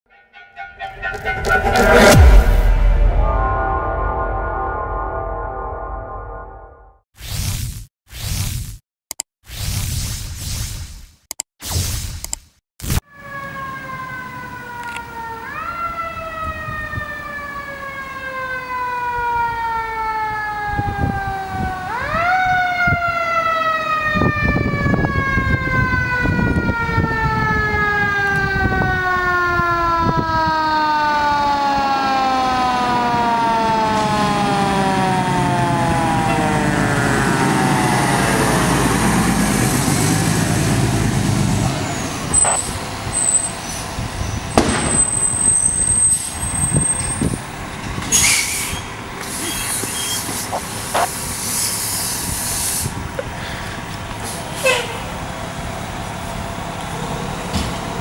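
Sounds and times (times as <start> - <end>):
truck engine: 0.2 - 6.6, 32.8 - 58.0.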